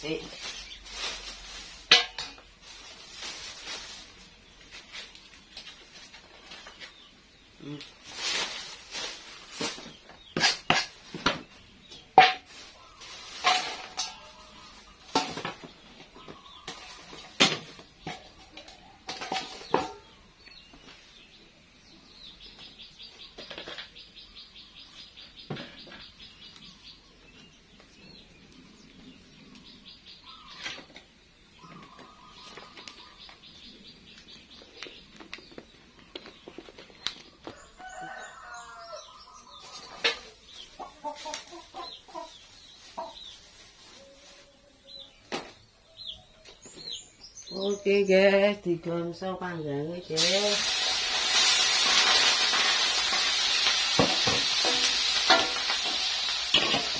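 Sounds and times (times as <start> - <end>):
metal pots clattering: 1.8 - 2.5, 13.3 - 14.5, 15.1 - 15.6, 16.7 - 20.1, 50.6 - 56.9
chickens clucking: 39.2 - 46.9.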